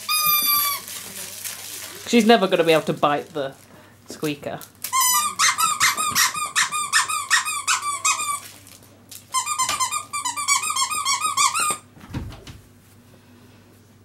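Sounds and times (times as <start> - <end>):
dog toy squeaking: 0.0 - 0.9, 4.9 - 8.4, 9.3 - 11.8.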